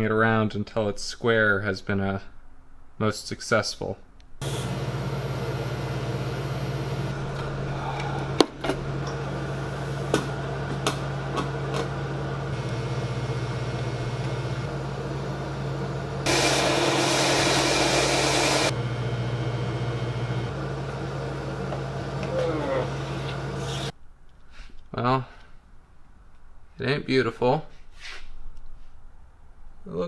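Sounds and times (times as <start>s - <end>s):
welding arc buzzing: 4.4s - 23.9s.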